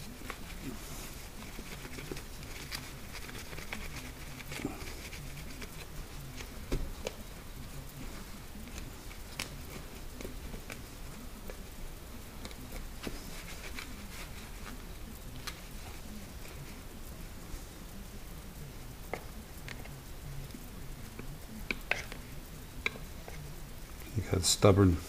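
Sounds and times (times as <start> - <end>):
paper towel wiping plastic: 0.0 - 11.7, 12.3 - 17.0.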